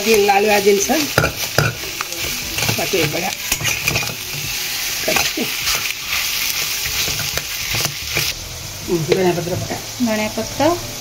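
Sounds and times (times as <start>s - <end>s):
pan sizzling: 0.0s - 11.0s
metal spatula scraping a pot: 0.3s - 8.4s.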